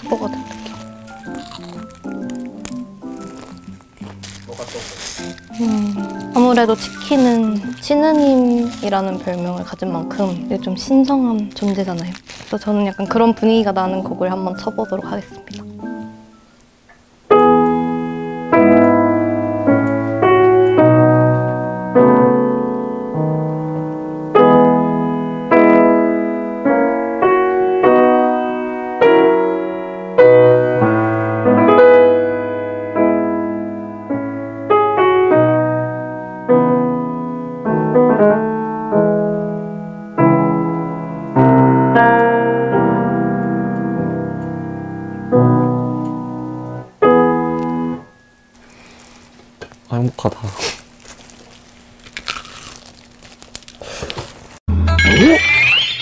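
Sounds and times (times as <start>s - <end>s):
solemn piano chords: 0.0s - 16.5s, 17.2s - 48.5s.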